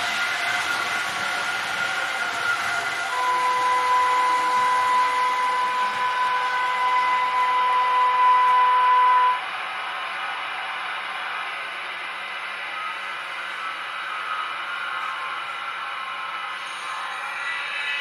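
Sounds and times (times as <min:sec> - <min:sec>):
model locomotive running sound: 0:00.0 - 0:18.0
steady high tone: 0:03.0 - 0:09.7.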